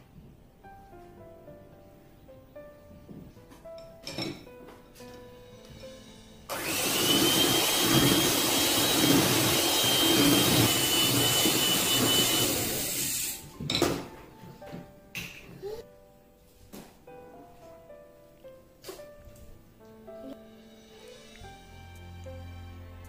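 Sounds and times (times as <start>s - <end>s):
electric hand mixer whining: 6.5s - 13.5s.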